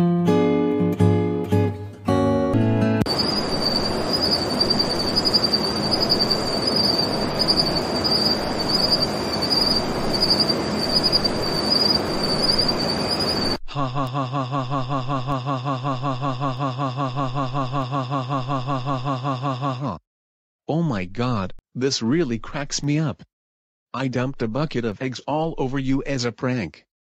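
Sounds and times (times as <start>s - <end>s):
crickets chirring: 3.1s - 13.6s.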